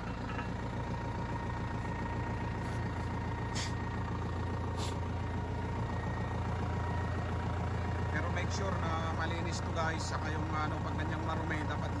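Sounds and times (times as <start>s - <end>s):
tractor engine idling: 0.0s - 12.0s.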